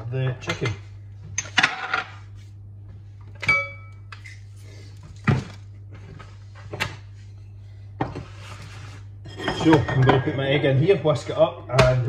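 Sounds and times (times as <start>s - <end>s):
kitchenware clattering: 1.4s - 2.2s, 9.2s - 10.9s.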